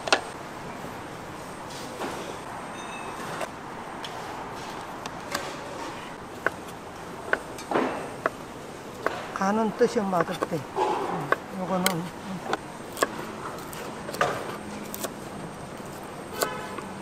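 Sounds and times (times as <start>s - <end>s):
busy market stall noise: 4.1s - 17.0s.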